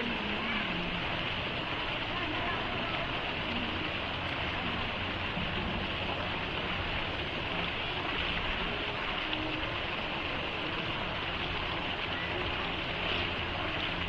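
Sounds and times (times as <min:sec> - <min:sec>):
waterfall splashing into pool: 0:00.0 - 0:14.0.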